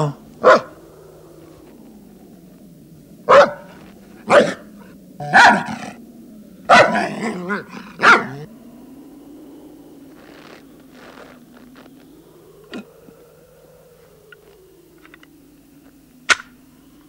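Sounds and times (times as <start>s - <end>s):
dog barking: 0.0s - 0.8s, 3.3s - 4.6s, 5.2s - 6.0s, 6.7s - 8.5s.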